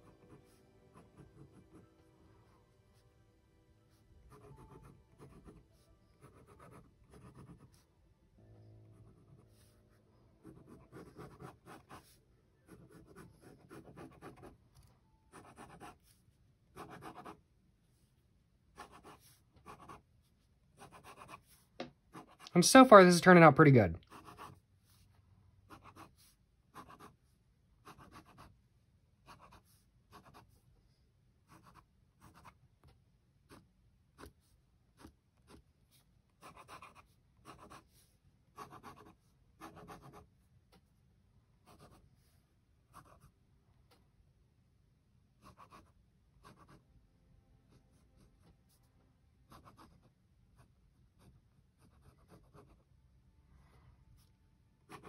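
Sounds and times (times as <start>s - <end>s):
pen scratching on paper: 0.0s - 1.9s, 4.2s - 7.9s, 9.0s - 9.8s, 10.4s - 14.7s, 15.3s - 17.5s, 18.7s - 22.5s, 24.1s - 25.0s, 25.7s - 28.6s, 29.2s - 30.6s, 31.4s - 32.6s, 33.4s - 40.3s, 41.6s - 42.2s, 42.9s - 43.3s, 45.4s - 46.8s, 49.5s - 52.9s, 54.2s - 55.0s.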